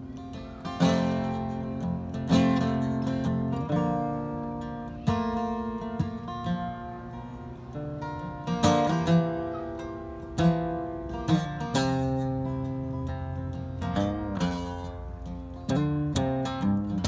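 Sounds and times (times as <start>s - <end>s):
acoustic guitar chords ringing: 0.0s - 17.0s.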